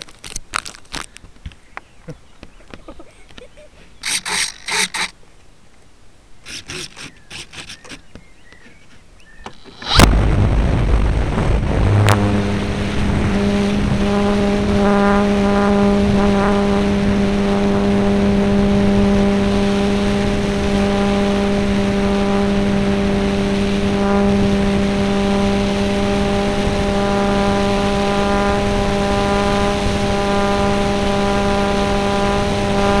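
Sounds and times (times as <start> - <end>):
model plane motor droning: 4.0 - 5.2, 6.4 - 10.1, 12.1 - 33.0
air rushing past: 9.4 - 16.2.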